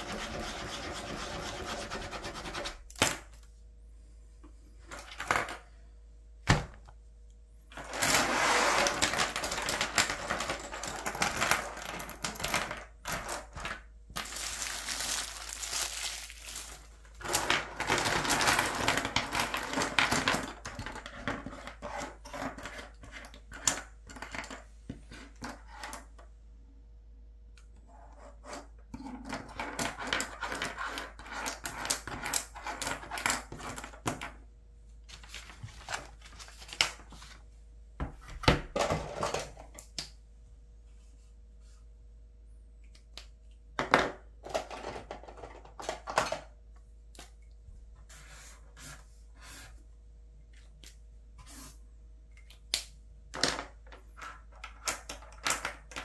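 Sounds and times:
plastic pens clattering: 7.7 - 26.1, 53.4 - 56.0.

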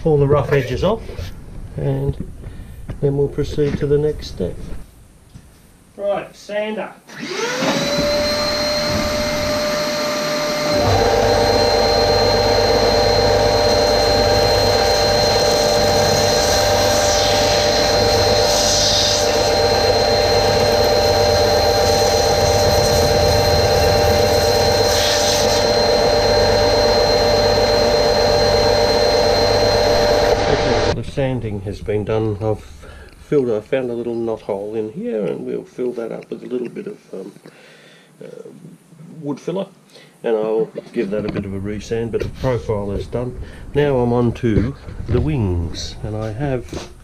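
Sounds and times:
belt sander motor whining: 7.1 - 31.0
wood being sanded: 12.8 - 26.6.

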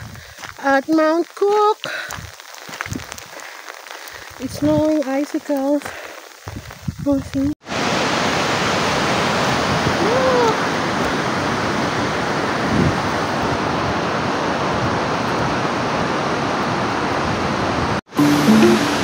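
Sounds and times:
river rushing over boulders: 7.6 - 19.0
plucked-string music: 18.1 - 19.0.

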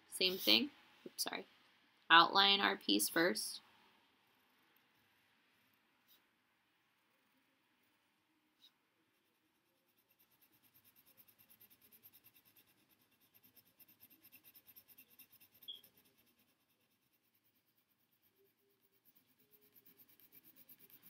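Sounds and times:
pencil scratching on paper: 4.4 - 6.3, 8.6 - 21.0
short high squeak: 15.6 - 15.9.

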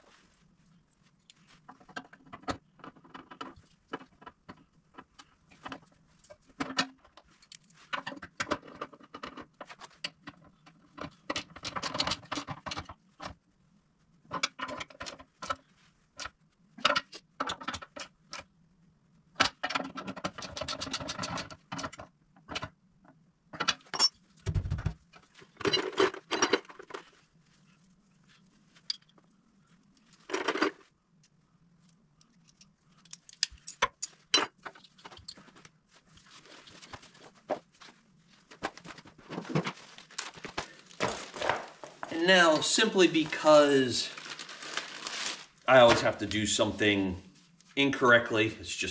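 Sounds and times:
metal tools clinking: 23.9 - 24.2.

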